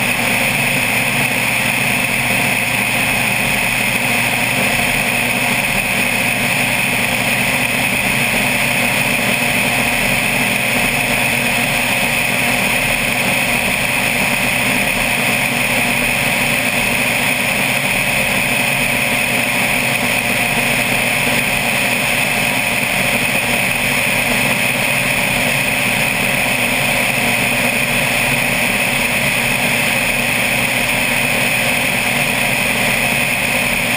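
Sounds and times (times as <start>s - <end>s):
propeller plane engine droning: 0.0s - 33.9s.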